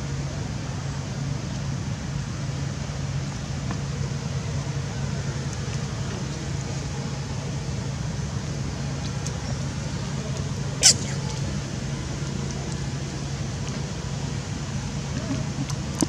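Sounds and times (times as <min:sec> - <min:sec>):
steady low hum: 0:00.0 - 0:16.0
background hiss: 0:03.2 - 0:16.0.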